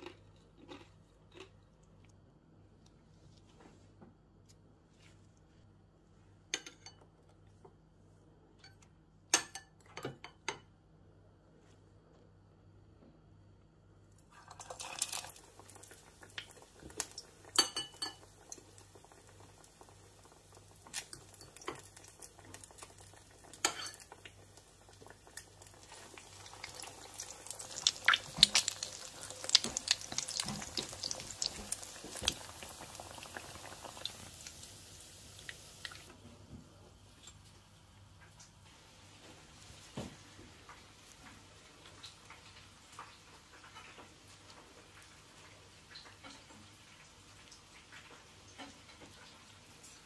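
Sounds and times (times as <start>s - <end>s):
food sizzling in hot oil: 14.3s - 36.1s.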